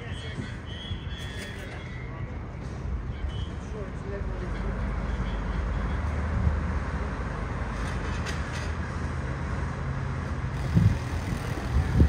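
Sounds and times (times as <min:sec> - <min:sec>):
outdoor rumble: 0:10.0 - 0:12.0.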